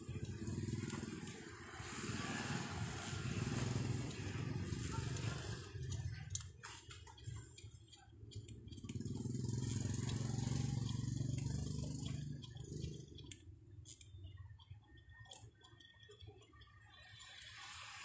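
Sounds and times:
metal tool clicking and scraping: 0:05.8 - 0:18.0.

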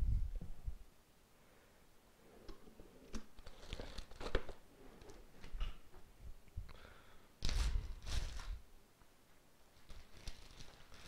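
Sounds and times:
wrapping material crinkling and tearing: 0:03.4 - 0:04.6, 0:07.4 - 0:08.6, 0:09.8 - 0:11.0.

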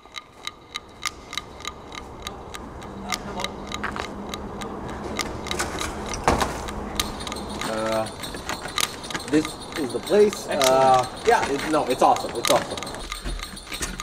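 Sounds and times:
rapid ticking: 0:00.0 - 0:14.0
faint voices: 0:02.1 - 0:05.4, 0:06.0 - 0:13.1.

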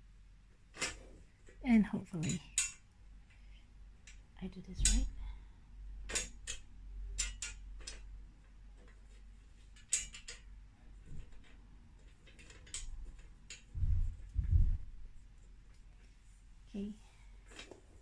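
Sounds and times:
small metal clicks and taps: 0:02.2 - 0:02.8, 0:04.0 - 0:05.2, 0:06.1 - 0:08.2, 0:08.8 - 0:13.8.

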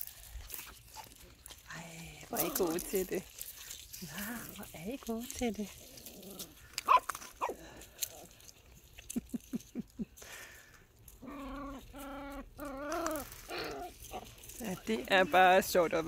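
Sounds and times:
puppies whimpering and yelping: 0:11.2 - 0:14.5.

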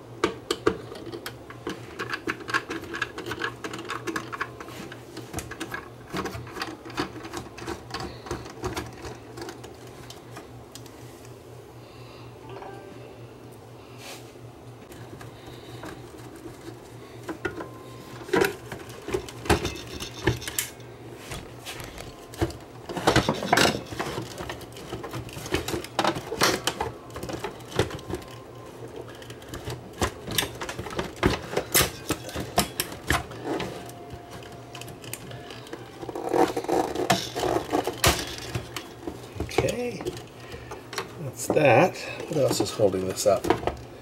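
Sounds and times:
plastic parts clicking and rattling: 0:00.5 - 0:10.9, 0:21.8 - 0:41.7.

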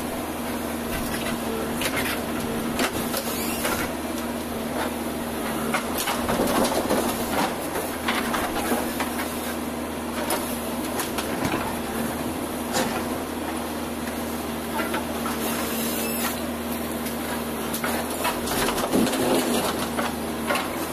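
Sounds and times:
diesel engine running: 0:00.0 - 0:20.9
knocks and clatter: 0:05.7 - 0:09.1.

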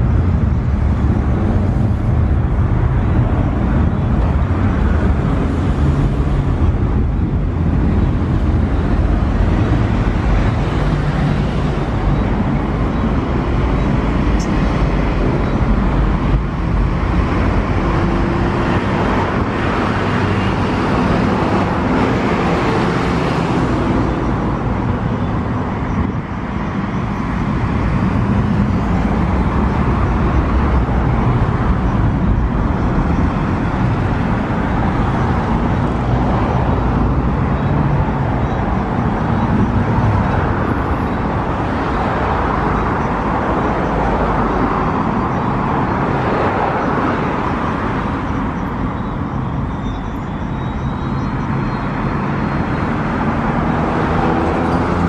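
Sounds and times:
jet engines roaring at takeoff: 0:00.0 - 0:50.5.

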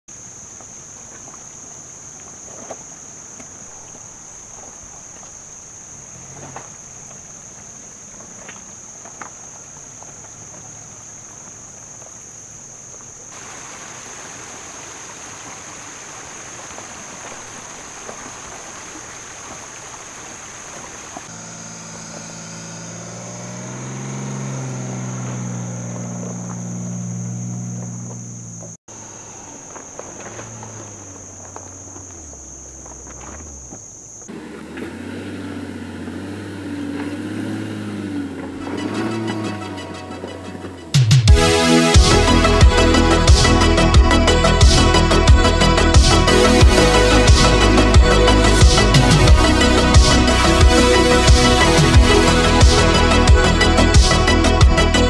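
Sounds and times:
diesel suv engine: 0:00.0 - 0:13.2, 0:21.0 - 0:55.0
stream water rushing over rocks: 0:13.3 - 0:25.2
high-pitched insect buzz: 0:21.2 - 0:34.3, 0:41.5 - 0:55.0.

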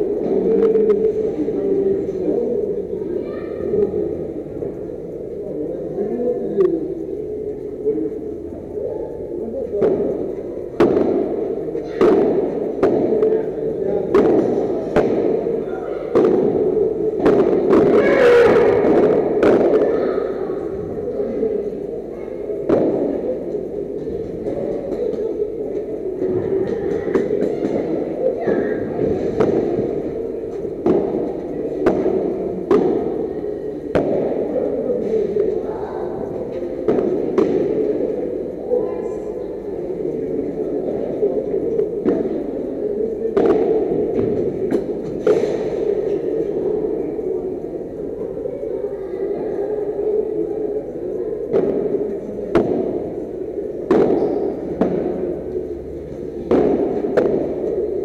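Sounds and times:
padel ball struck by paddles: 0:10.8 - 0:13.3, 0:14.1 - 0:15.5, 0:29.4 - 0:30.0, 0:30.8 - 0:33.2, 0:33.9 - 0:34.5, 0:43.4 - 0:45.7, 0:51.5 - 0:53.0, 0:53.9 - 0:55.3, 0:56.5 - 0:57.7.

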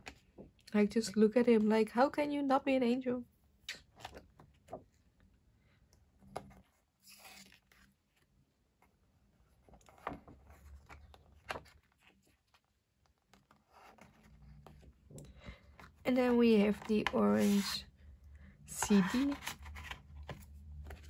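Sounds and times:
page rustling: 0:06.2 - 0:17.8, 0:18.8 - 0:21.0.

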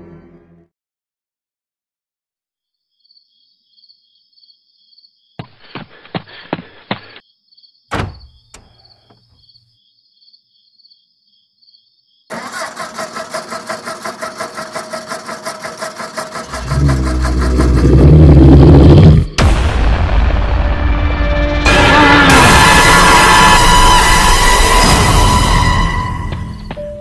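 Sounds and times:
night insects chirping: 0:02.9 - 0:14.1
car door slam: 0:07.9 - 0:08.7
car engine starting and running: 0:12.3 - 0:19.8.

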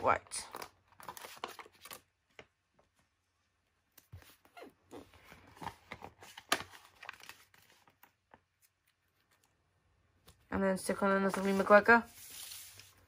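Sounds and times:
paper sheets rustling and crackling: 0:00.5 - 0:02.5, 0:11.1 - 0:13.0.

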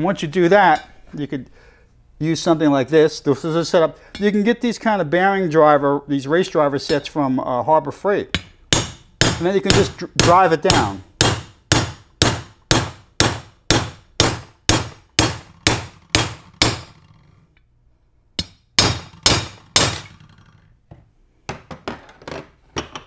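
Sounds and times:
hammer striking metal: 0:08.3 - 0:17.1, 0:18.4 - 0:20.3.

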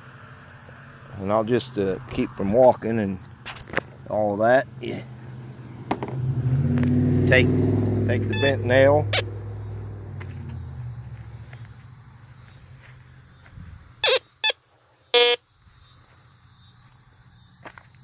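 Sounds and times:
car hum: 0:00.0 - 0:14.5
metal detector beeps: 0:08.2 - 0:09.3, 0:14.0 - 0:14.6, 0:15.2 - 0:15.4.

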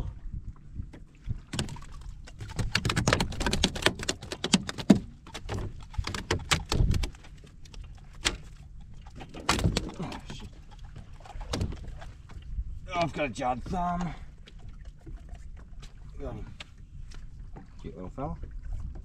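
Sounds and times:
gear clattering and knocking: 0:01.5 - 0:10.6.

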